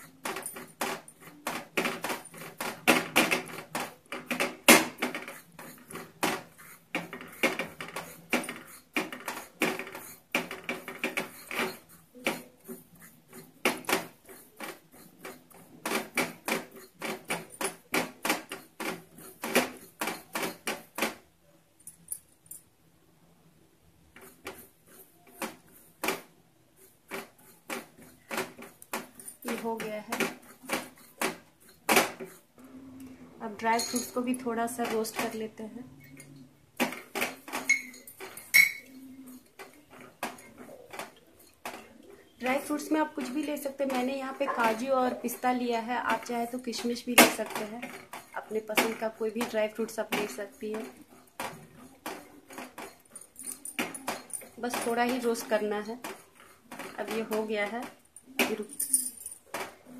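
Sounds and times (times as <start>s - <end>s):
spatula scraping a pan: 0.0s - 21.1s, 24.1s - 32.6s, 36.9s - 53.4s.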